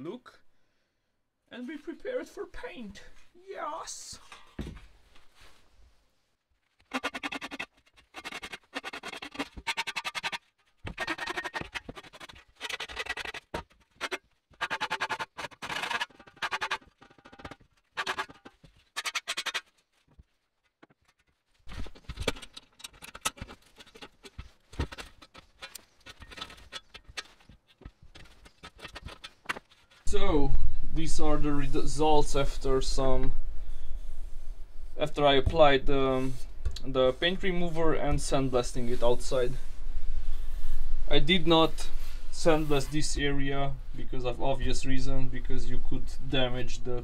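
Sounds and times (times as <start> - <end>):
file rasping on sheet metal: 6.9 - 19.6.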